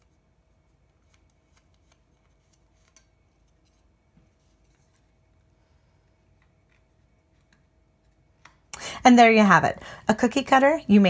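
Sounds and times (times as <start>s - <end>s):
thin metal strip clicking and crinkling: 1.0s - 5.2s.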